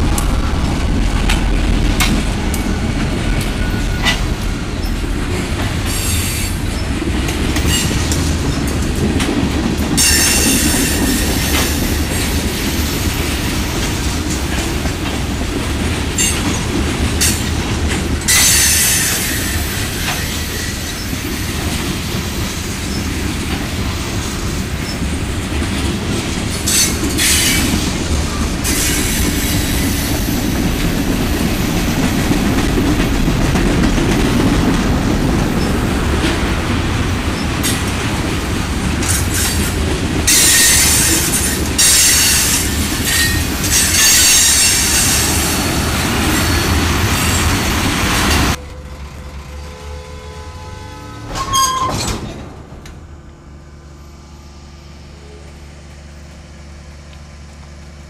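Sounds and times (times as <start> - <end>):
train wheels rumbling and clacking: 0.0 - 54.4
high-pitched wheel squeal: 49.6 - 52.2.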